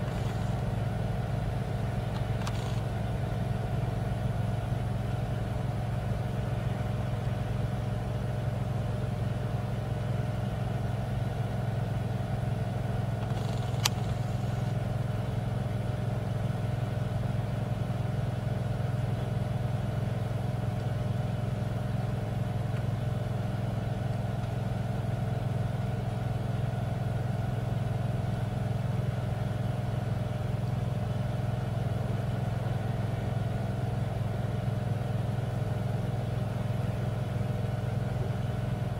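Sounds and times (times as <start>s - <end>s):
diesel truck engines under load: 0.0s - 0.8s
sharp click: 2.1s - 2.9s, 13.2s - 14.7s.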